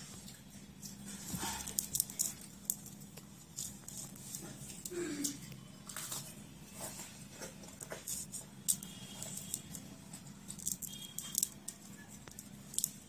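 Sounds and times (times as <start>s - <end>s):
soldering iron clicks and scratches: 7.8s - 13.0s.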